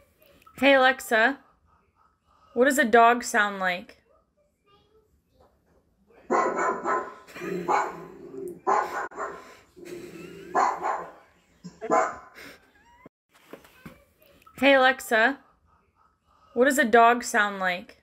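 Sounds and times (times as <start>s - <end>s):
recorded dog barking: 6.2s - 9.6s, 10.5s - 12.4s.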